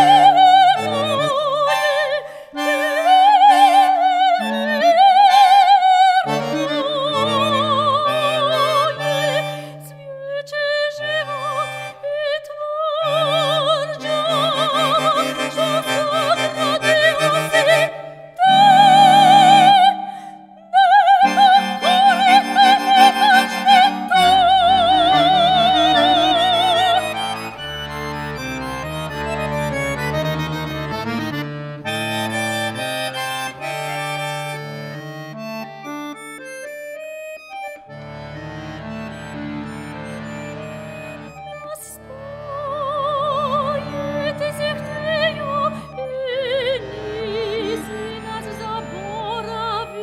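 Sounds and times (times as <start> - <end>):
button accordion chords: 0.0 - 12.2, 12.9 - 50.0
soprano singing opera: 0.0 - 27.2, 41.6 - 50.0.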